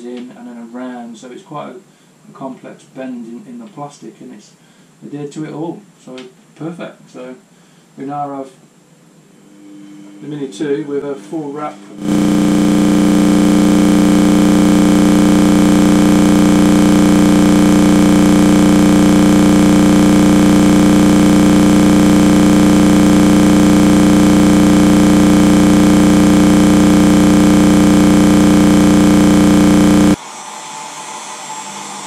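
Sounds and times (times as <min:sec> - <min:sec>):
hair dryer running: 0:12.0 - 0:30.2.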